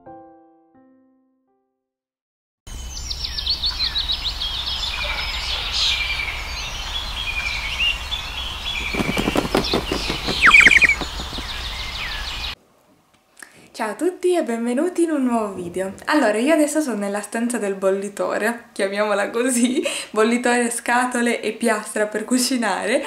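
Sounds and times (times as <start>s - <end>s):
small birds chirping: 2.7s - 12.6s.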